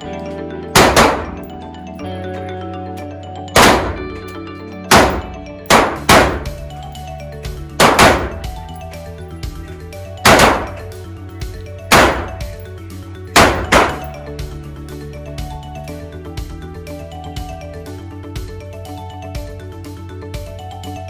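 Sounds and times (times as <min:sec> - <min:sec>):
background music: 0:00.0 - 0:21.0
rifle shots ringing in range hall: 0:00.8 - 0:01.3, 0:03.6 - 0:04.0, 0:07.8 - 0:08.4, 0:10.3 - 0:10.8, 0:11.9 - 0:12.4, 0:13.4 - 0:14.0.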